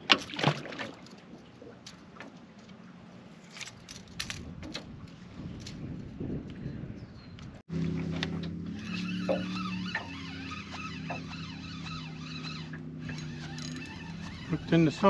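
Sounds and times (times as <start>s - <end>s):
fishing tackle clicking and rattling: 3.4s - 5.0s, 12.1s - 14.4s.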